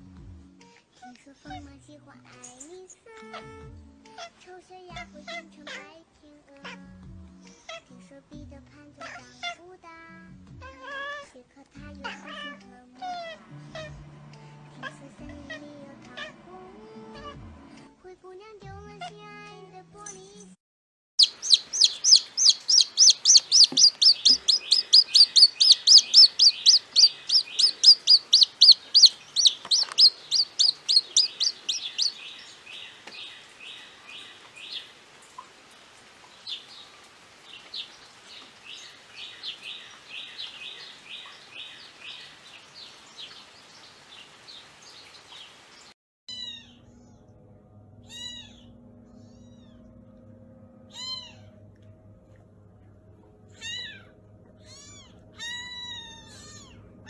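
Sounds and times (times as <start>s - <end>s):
chick peeping: 21.2s - 34.9s.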